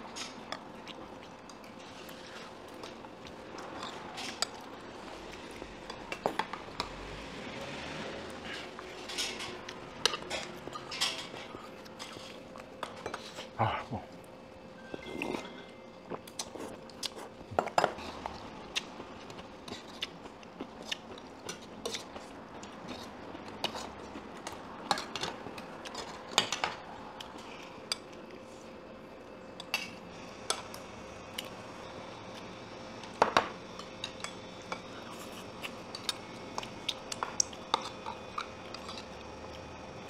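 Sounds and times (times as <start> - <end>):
faint steady hum: 0.0 - 40.0
chewing: 0.2 - 6.9, 15.0 - 26.6, 33.8 - 39.6.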